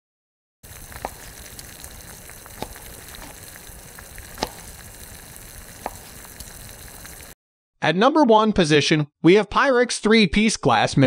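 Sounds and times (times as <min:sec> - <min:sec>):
steady sizzling hiss: 0:00.6 - 0:07.4.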